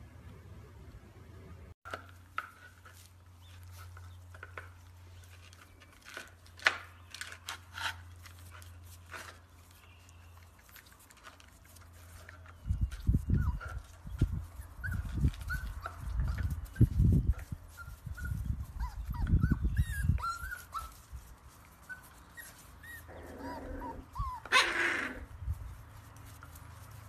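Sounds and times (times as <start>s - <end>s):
puppies whimpering: 12.5s - 25.3s
puppy barking: 23.1s - 25.3s.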